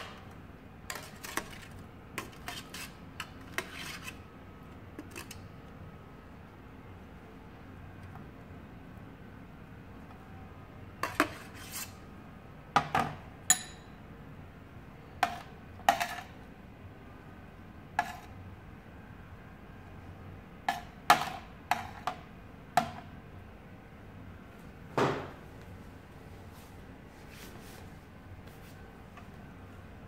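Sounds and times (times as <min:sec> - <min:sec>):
spoon scraping grated beetroot: 0:00.9 - 0:04.2, 0:11.0 - 0:12.0, 0:18.0 - 0:18.4
spoon clinking against glass bowl: 0:13.5 - 0:14.0.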